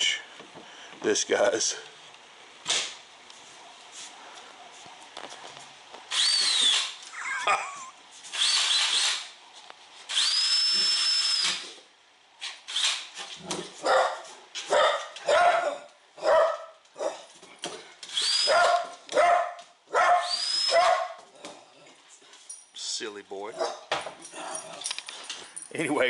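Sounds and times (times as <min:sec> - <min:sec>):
cordless drill whining: 0:06.1 - 0:07.0, 0:08.3 - 0:09.3, 0:10.1 - 0:11.8, 0:12.7 - 0:13.1, 0:18.1 - 0:18.7, 0:20.2 - 0:20.8
large dog barking: 0:13.8 - 0:17.3, 0:18.5 - 0:21.5, 0:23.5 - 0:24.8.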